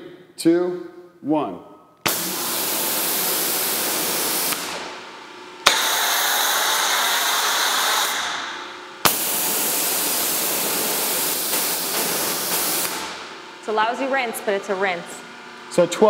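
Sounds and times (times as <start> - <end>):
spray gun crack: 2.0 - 5.0, 5.6 - 13.4
pressure washer spraying water: 2.1 - 4.9, 5.6 - 13.3.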